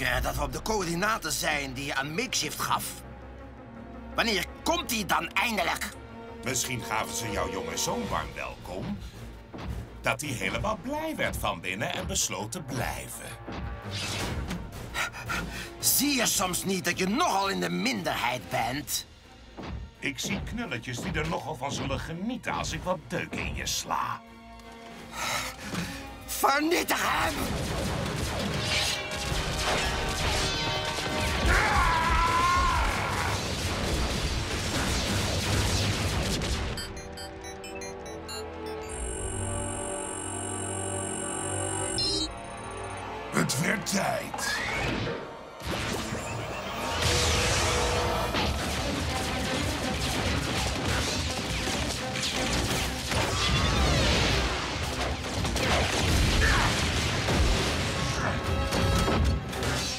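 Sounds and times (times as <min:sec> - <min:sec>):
background music: 0:00.0 - 0:59.9
crashing explosions: 0:27.4 - 0:37.1, 0:45.6 - 0:59.6
energy blaster shots: 0:33.3 - 0:37.2
short electronic beeps: 0:36.7 - 0:43.1.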